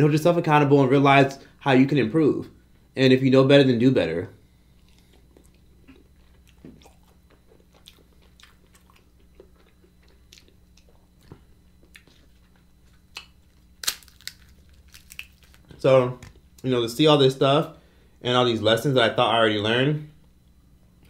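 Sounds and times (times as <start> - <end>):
wet chewing and mouth clicks: 4.8 - 15.6
crisp meat crackling: 12.0 - 15.8.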